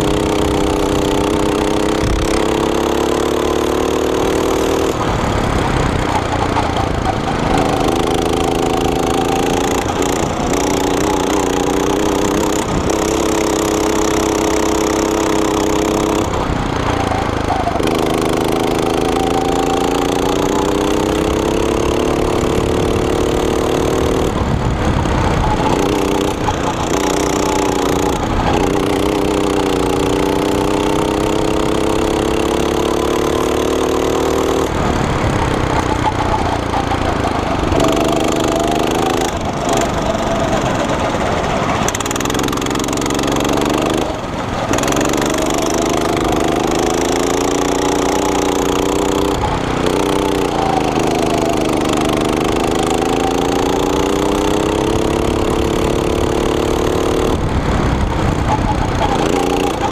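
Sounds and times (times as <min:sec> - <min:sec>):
go-kart engine revving: 0:00.0 - 0:59.9
track rumble: 0:00.0 - 0:59.9
wind rush: 0:24.2 - 0:28.8, 0:57.3 - 0:59.9.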